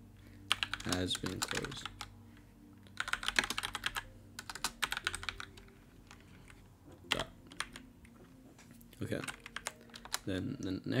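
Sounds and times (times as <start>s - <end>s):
typing on computer keyboard: 0.5s - 2.1s, 2.9s - 6.2s, 7.1s - 7.8s, 9.2s - 10.3s.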